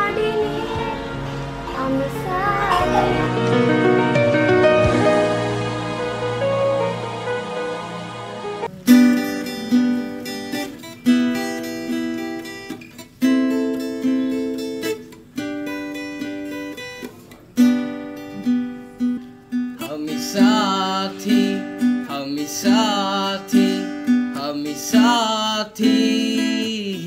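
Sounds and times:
person singing: 0.0s - 3.9s, 19.8s - 27.0s
strummed acoustic guitar: 0.0s - 27.0s.

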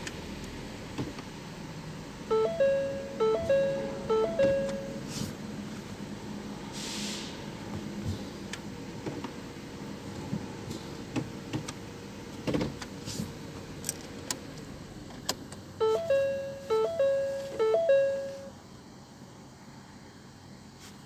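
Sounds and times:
electronic chime: 2.3s - 5.1s, 15.8s - 18.6s.

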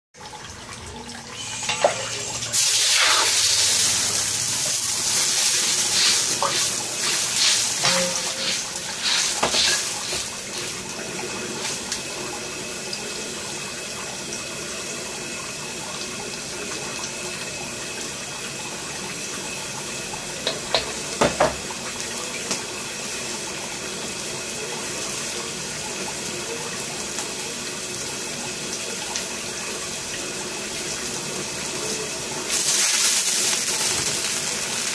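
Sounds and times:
water hissing in hot wok: 1.4s - 12.2s, 30.7s - 34.9s
wok clanks and knocks: 6.0s - 10.3s.

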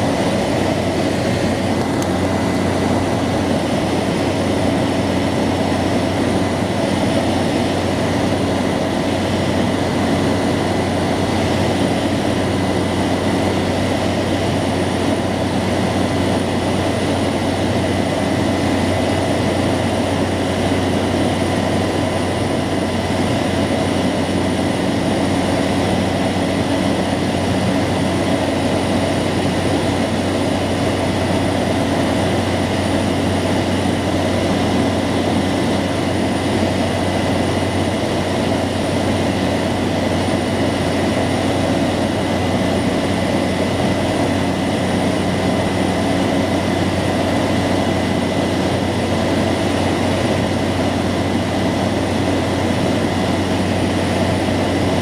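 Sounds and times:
turboprop engine drone: 0.0s - 55.0s.

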